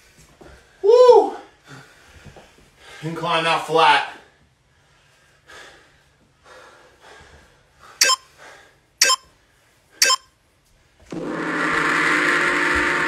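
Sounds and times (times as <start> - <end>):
heavy breathing: 4.8 - 8.9
timer beeps: 8.0 - 8.3, 9.0 - 9.3, 10.0 - 10.3.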